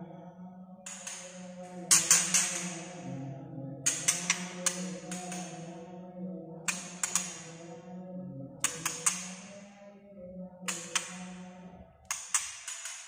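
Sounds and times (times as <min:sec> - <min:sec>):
bird clicking calls: 0:06.7 - 0:07.4.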